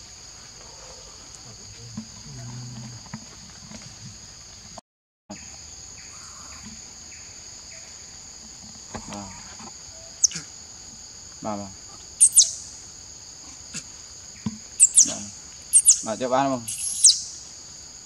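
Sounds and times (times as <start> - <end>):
high insect drone: 0.0 - 18.0
short calls: 8.9 - 10.6, 11.9 - 12.8, 14.8 - 17.4
sharp high falling chirps: 12.2 - 12.6, 14.8 - 17.3.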